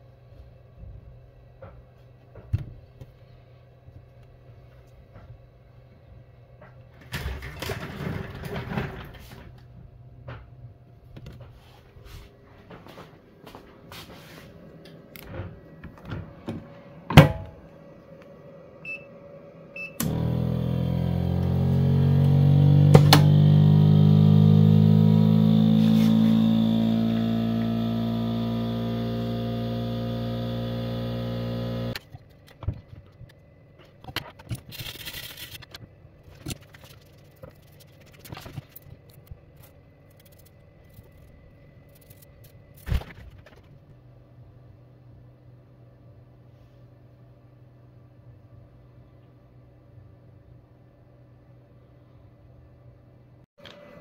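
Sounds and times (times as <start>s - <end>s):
laminating machine pump humming: 19.8s - 32.0s.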